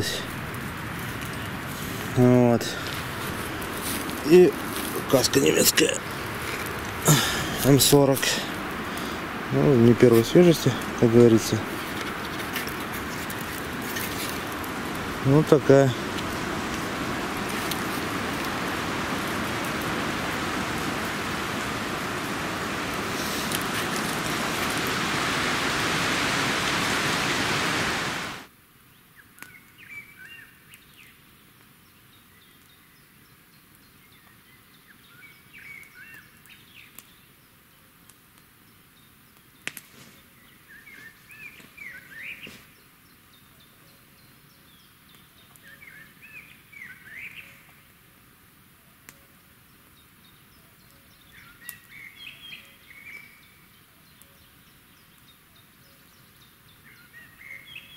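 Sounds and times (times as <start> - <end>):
quiet forest background: 0.0 - 57.9
loud steady rushing noise: 1.9 - 28.5
songbird chirping: 38.6 - 47.9, 49.1 - 57.9.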